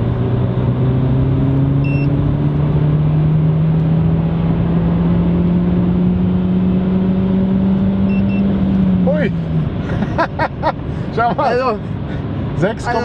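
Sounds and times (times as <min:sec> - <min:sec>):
car engine accelerating: 0:00.0 - 0:13.0
short electronic beep: 0:01.8 - 0:02.2, 0:08.0 - 0:08.5.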